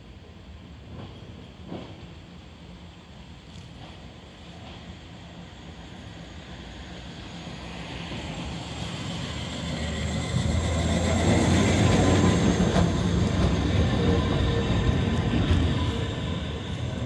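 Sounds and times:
tram rumbling on rails: 0.0 - 17.0.

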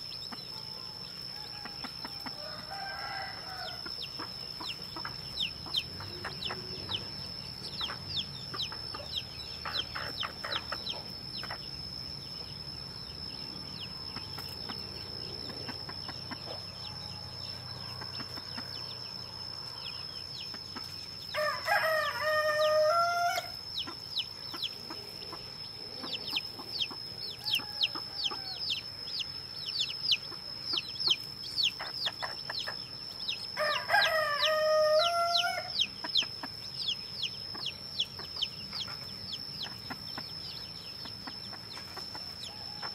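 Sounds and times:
chicks peeping: 0.0 - 42.9
rooster crowing: 1.2 - 4.0, 21.3 - 23.6, 26.0 - 28.9, 33.6 - 35.9, 42.2 - 42.9.

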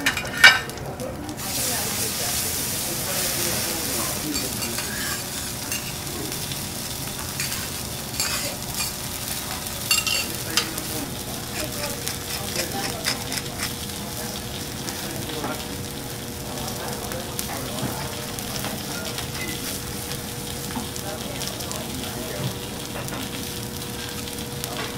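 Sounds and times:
metal utensils scraping a griddle: 0.0 - 0.7, 3.2 - 6.2, 7.2 - 13.9
food sizzling on a griddle: 0.0 - 24.9.

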